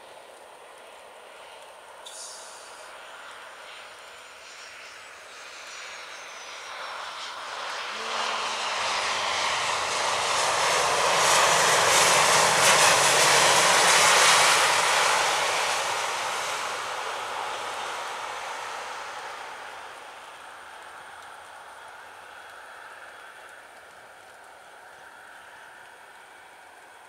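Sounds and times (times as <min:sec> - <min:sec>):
hiss of tyre spray: 0:02.0 - 0:06.1
jet engines roaring: 0:03.9 - 0:21.9.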